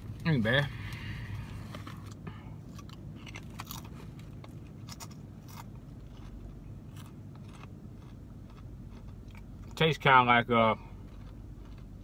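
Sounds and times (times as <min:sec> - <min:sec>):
steady low hum: 0:00.0 - 0:12.0
person chewing crunchy chip: 0:02.0 - 0:10.0, 0:10.7 - 0:12.0.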